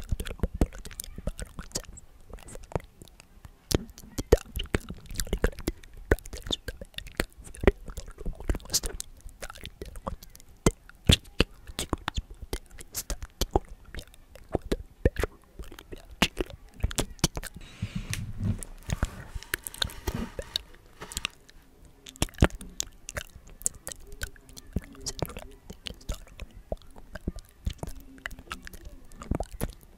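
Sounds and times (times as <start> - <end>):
wet mouth clicks and lip smacks: 0.0 - 17.6, 22.1 - 29.9
close whispering: 15.5 - 29.9.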